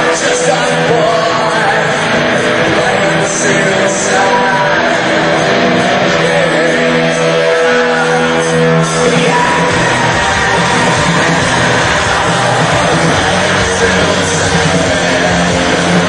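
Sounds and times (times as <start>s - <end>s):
live rock band playing: 0.0s - 16.0s
person singing: 0.0s - 16.0s.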